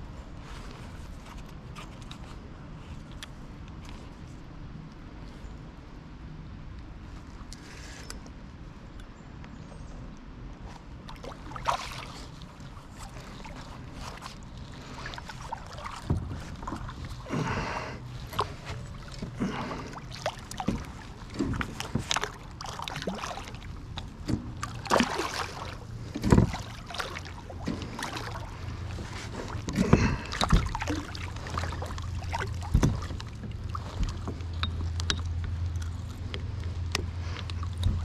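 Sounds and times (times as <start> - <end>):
steady low rumble: 8.3 - 38.0
fish splashing: 11.1 - 38.0.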